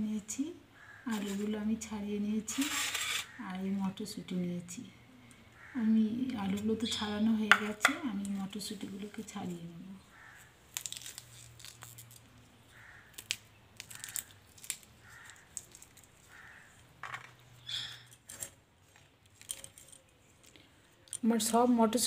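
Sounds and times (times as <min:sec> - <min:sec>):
pea pods snapping open: 0:10.7 - 0:12.3, 0:13.1 - 0:16.5.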